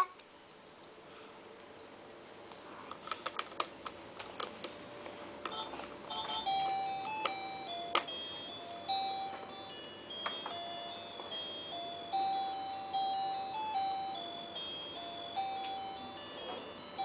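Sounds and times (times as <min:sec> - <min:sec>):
electronic toy beeping jingle: 0:05.5 - 0:17.0.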